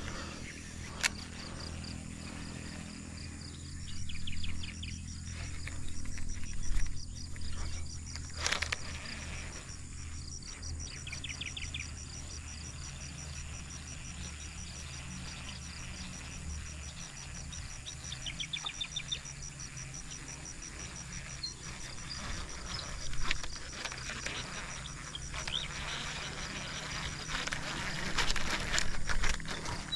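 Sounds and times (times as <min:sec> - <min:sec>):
insect chirping: 0:00.0 - 0:29.9.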